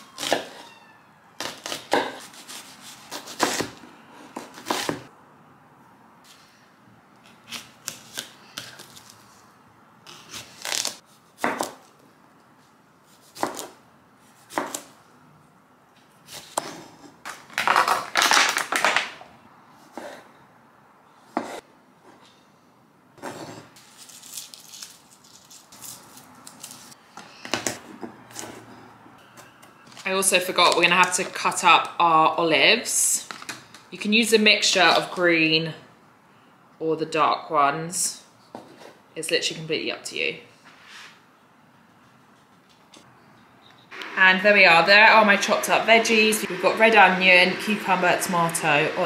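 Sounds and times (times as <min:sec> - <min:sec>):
knife chopping on wooden board: 0:13.3 - 0:13.7, 0:14.5 - 0:14.8.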